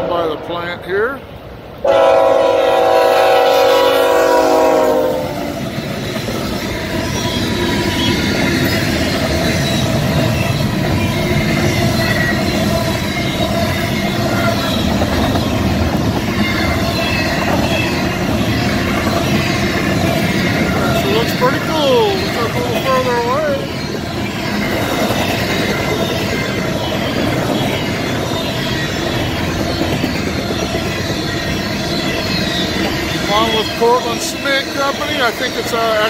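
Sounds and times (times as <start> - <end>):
train rumble and wheel clatter: 0.0 - 36.0
train air horn: 1.8 - 5.6.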